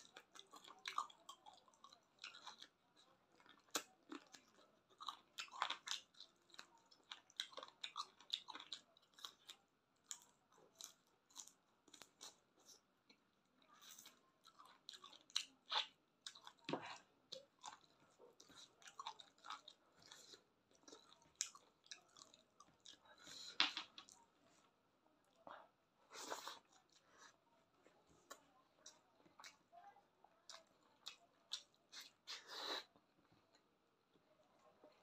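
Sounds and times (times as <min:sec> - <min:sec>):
person chewing and gnawing: 0:00.0 - 0:24.2, 0:30.4 - 0:32.8.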